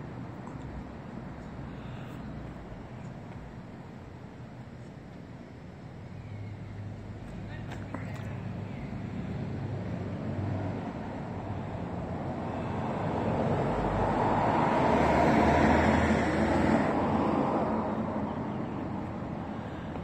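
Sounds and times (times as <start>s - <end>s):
road vehicle passing by: 6.2s - 20.0s.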